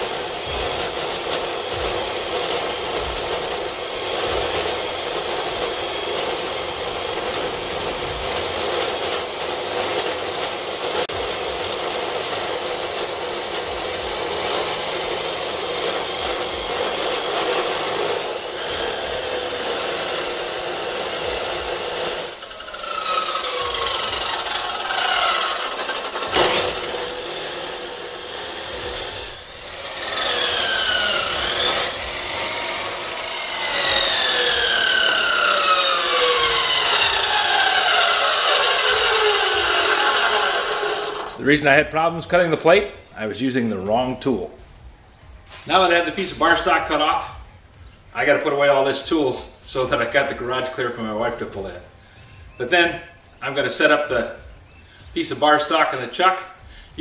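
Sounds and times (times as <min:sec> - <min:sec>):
falling whines: 0:00.0 - 0:41.4
chop saw grinding steel: 0:00.0 - 0:41.6.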